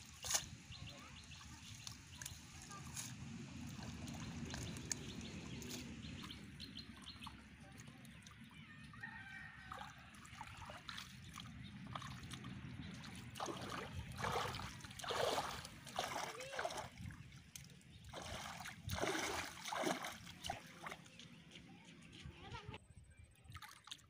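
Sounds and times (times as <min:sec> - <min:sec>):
rooster crowing: 0:09.0 - 0:09.9
hands splashing in shallow water: 0:09.6 - 0:21.2.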